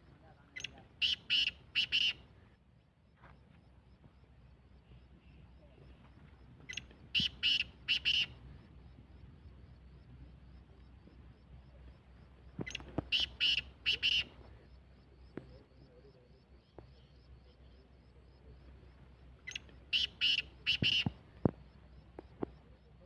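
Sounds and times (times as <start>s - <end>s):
bird calling harsh notes: 0.6s - 2.3s, 6.7s - 8.4s, 12.7s - 14.4s, 19.5s - 21.2s.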